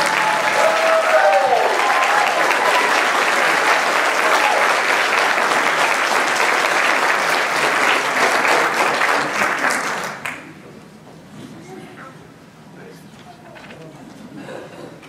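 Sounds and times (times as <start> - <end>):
congregation applauding: 0.0 - 10.6.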